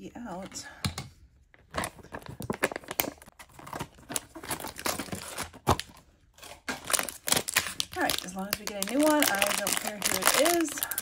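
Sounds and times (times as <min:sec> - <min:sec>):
plastic foil crinkling and tearing: 0:01.8 - 0:11.0.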